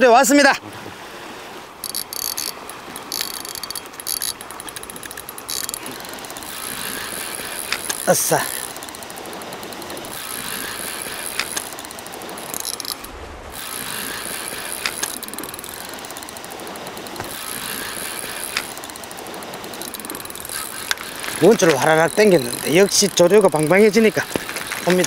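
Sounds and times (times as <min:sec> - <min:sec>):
reel light clicks: 0:01.8 - 0:06.5, 0:07.2 - 0:10.2, 0:11.0 - 0:13.0, 0:14.7 - 0:25.0
fishing reel gears whirring: 0:01.8 - 0:25.0.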